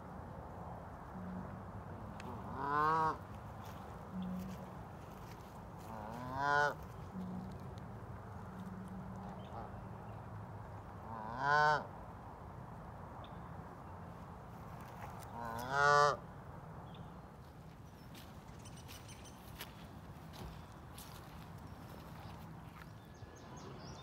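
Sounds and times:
goose honking: 1.2s - 7.6s, 11.1s - 11.9s, 15.3s - 16.2s.

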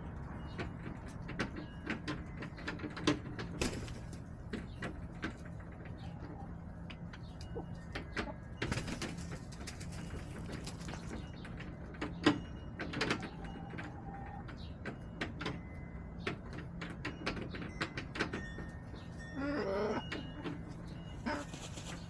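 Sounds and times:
rustling: 21.2s - 22.0s.

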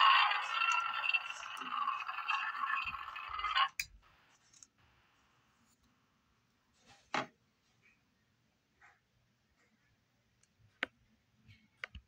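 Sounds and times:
electronic toy roar: 0.0s - 3.8s.

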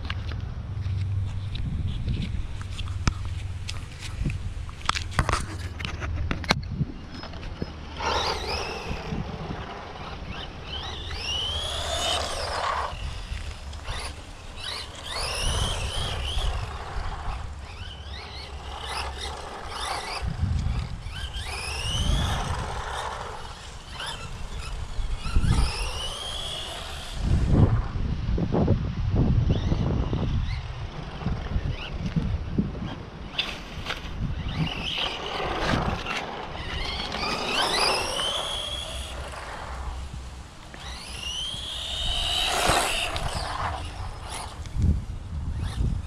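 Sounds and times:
electric motor whining: 7.2s - 28.0s, 29.4s - 46.0s
tyres rushing on asphalt: 7.2s - 28.2s, 30.5s - 45.8s.

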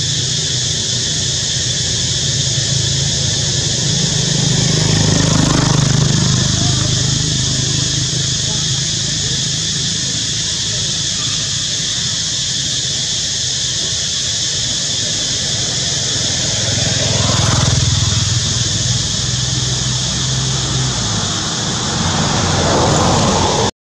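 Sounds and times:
motor engine drone: 0.0s - 11.8s, 14.3s - 23.7s
high hiss: 0.0s - 23.7s.

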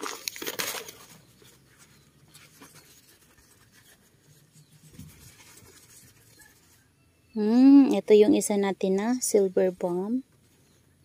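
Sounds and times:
paper rustling and scratching: 0.0s - 6.9s.

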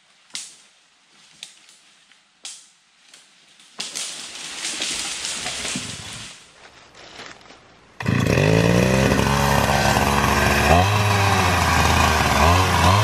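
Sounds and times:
wood crunching and crackling: 3.5s - 13.0s
chainsaw engine: 8.0s - 13.0s.

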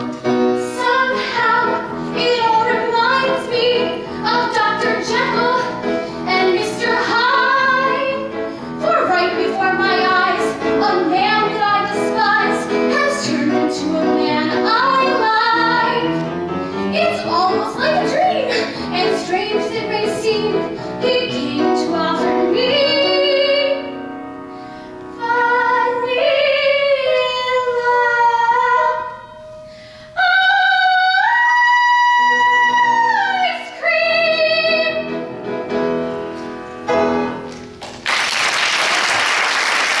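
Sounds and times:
woman singing operatic soprano: 25.2s - 29.4s, 30.2s - 35.1s
audience applause: 37.8s - 40.0s.

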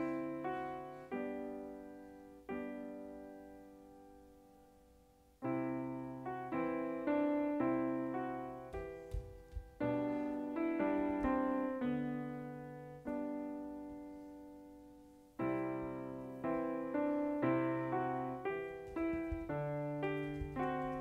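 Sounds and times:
piano chords: 0.0s - 21.0s
soft low thumps: 8.7s - 10.0s, 18.7s - 21.0s.

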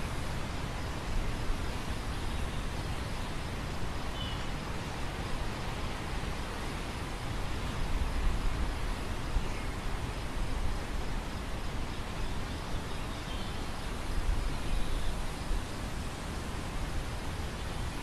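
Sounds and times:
wind hissing over grain: 0.0s - 18.0s.

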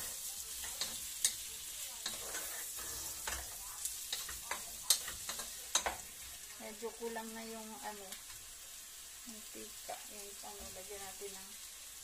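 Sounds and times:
food sizzling in oil: 0.0s - 12.0s
wooden spatula scraping pan: 2.0s - 6.3s.

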